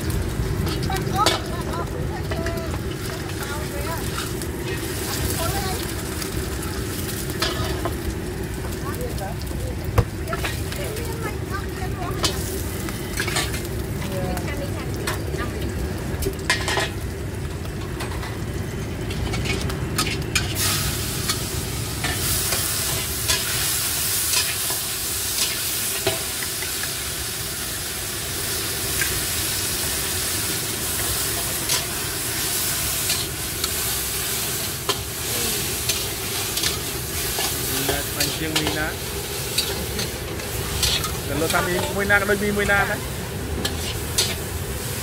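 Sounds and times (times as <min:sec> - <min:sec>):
oil sizzling in wok: 0:00.0 - 0:45.0
metal spatula scraping wok: 0:00.6 - 0:05.9, 0:06.7 - 0:08.0, 0:12.1 - 0:13.7, 0:16.4 - 0:17.0, 0:19.1 - 0:26.8, 0:30.5 - 0:45.0.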